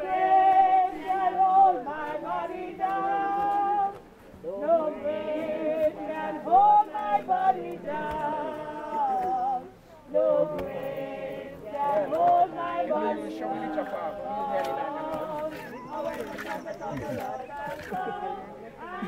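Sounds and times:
group singing a hymn: 0:00.0 - 0:19.0.

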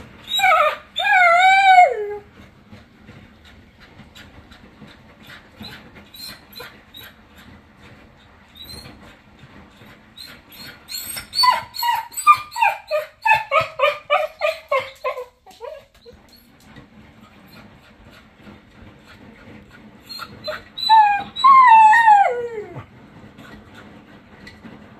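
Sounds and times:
dog crying: 0:00.3 - 0:02.3, 0:10.6 - 0:16.2, 0:20.1 - 0:22.8
dog howling: 0:00.3 - 0:02.3, 0:20.4 - 0:22.9.

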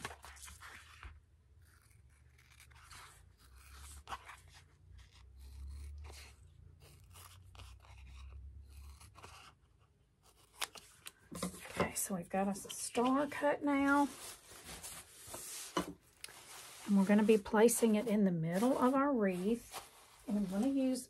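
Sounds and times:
scissors snipping foam: 0:01.6 - 0:11.2.

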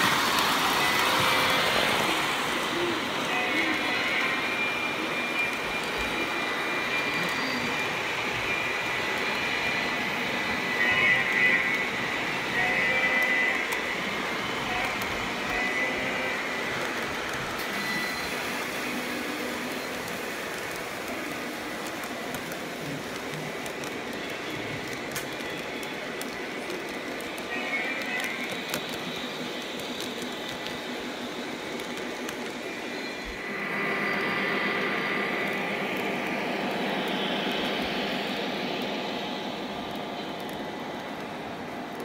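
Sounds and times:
model train rolling on track: 0:00.0 - 0:42.0
thin high whine: 0:32.6 - 0:40.8.

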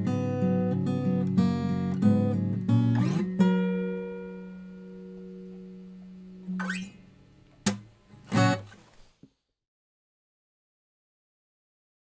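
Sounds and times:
acoustic guitar chord ringing: 0:00.0 - 0:08.7.

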